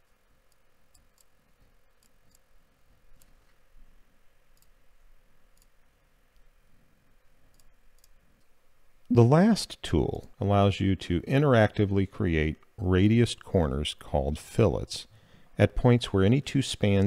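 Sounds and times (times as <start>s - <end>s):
computer mouse clicks: 0.5s - 2.5s, 4.5s - 4.8s, 7.5s - 8.5s.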